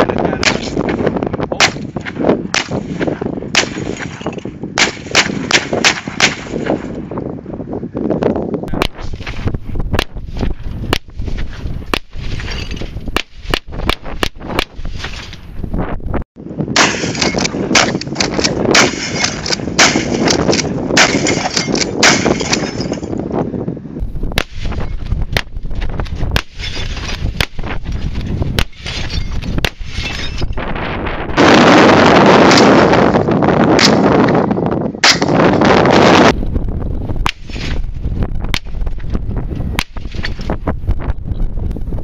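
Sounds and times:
wind rush: 0.0 - 42.0
shotgun gunshots: 0.4 - 1.0, 1.6 - 6.9, 16.8 - 22.9.

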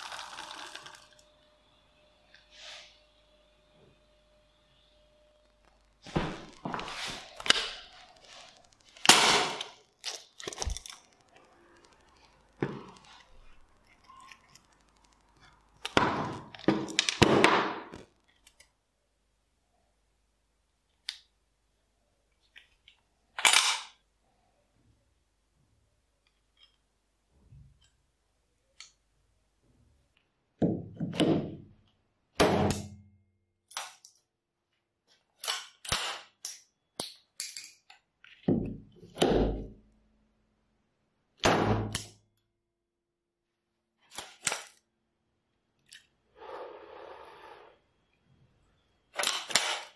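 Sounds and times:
nail gun bangs: 32.4 - 33.0.

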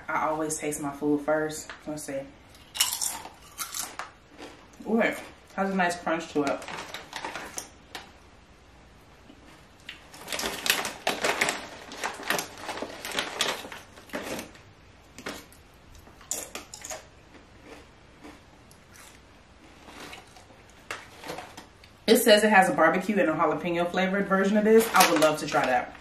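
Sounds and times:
crunching crisp chips: 2.5 - 5.4, 9.8 - 22.0.

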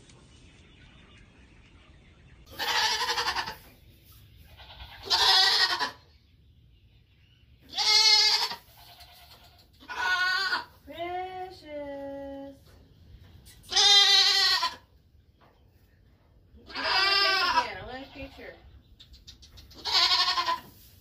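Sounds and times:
goats bleating: 2.5 - 3.6, 4.6 - 6.0, 7.7 - 10.7, 13.7 - 14.8, 16.6 - 18.4, 19.8 - 20.7.

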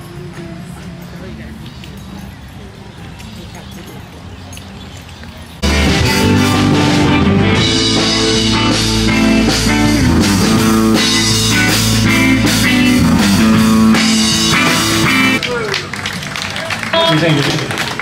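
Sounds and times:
drum kit: 5.6 - 15.4
electric guitar: 5.6 - 15.7.

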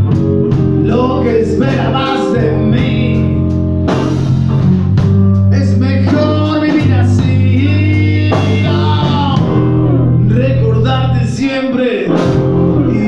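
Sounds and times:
drum kit: 0.0 - 11.4, 12.0 - 13.0
bass guitar: 0.0 - 13.0
electric guitar: 0.0 - 13.0
man singing: 0.7 - 3.6, 5.5 - 13.0.

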